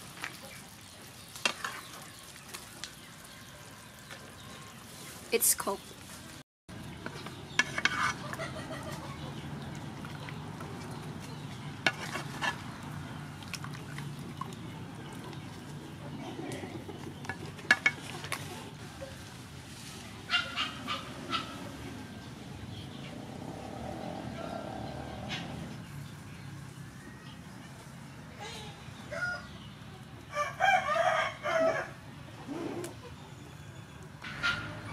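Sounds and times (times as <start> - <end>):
metal spatula scraping frying pan: 7.5 - 8.4, 11.8 - 12.7.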